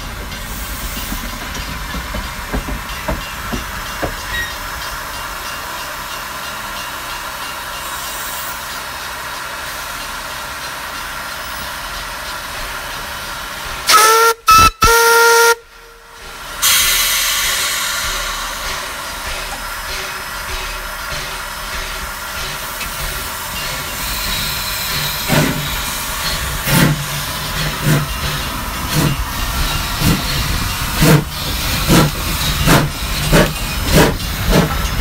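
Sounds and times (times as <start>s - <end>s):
loud hiss of steam: 0.0s - 35.0s
steam locomotive whistle: 13.8s - 18.8s.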